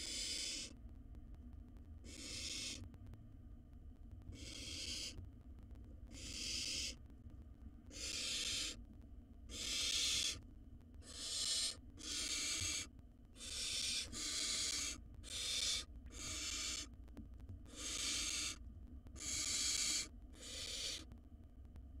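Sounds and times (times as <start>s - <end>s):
owl chicks hissing calls: 0.0s - 0.7s, 2.0s - 2.8s, 4.4s - 5.2s, 6.1s - 7.0s, 7.9s - 8.8s, 9.5s - 10.4s, 11.0s - 16.9s, 17.7s - 18.6s, 19.2s - 21.0s.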